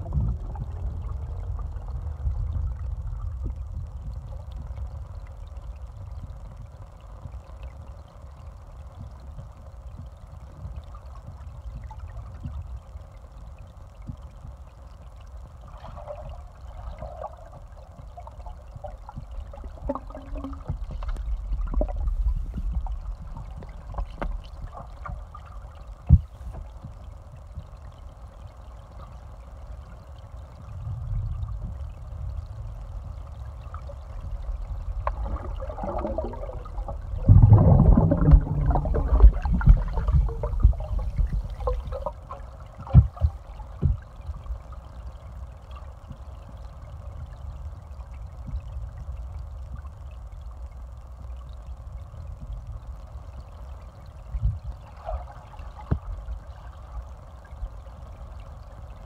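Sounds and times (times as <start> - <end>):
muffled underwater rumble: 0.0 - 59.0
underwater clicks and knocks: 18.8 - 25.4, 34.6 - 44.1.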